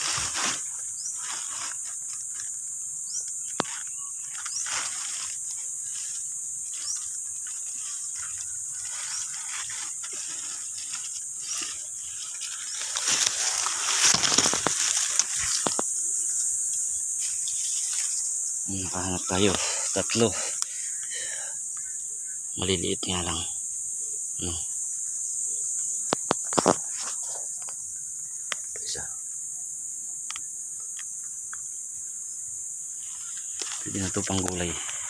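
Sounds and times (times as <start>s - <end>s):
dry leaves rustling and crackling: 0.0s - 20.8s, 33.0s - 35.0s
insects droning: 0.0s - 35.0s.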